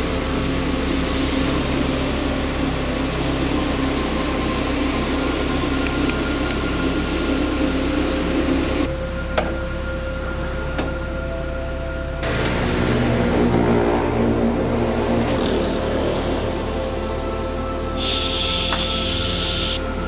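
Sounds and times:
machine running: 0:12.2 - 0:16.2, 0:18.0 - 0:19.8.

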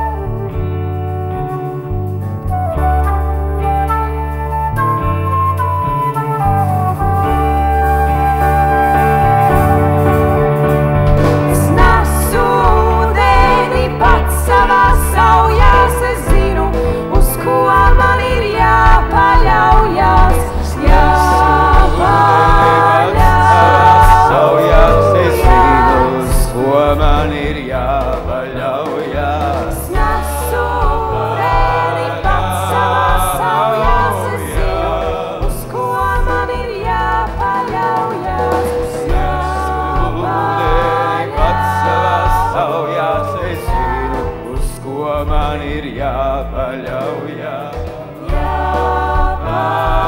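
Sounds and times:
bass guitar: 0:00.0 - 0:50.0
drums: 0:00.0 - 0:50.0
live pop band playing: 0:00.0 - 0:50.0
women singing in harmony: 0:11.5 - 0:50.0.

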